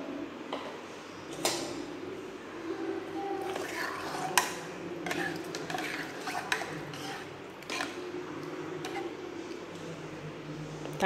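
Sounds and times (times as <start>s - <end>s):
wet squelching of stirred gravy: 3.4s - 10.3s.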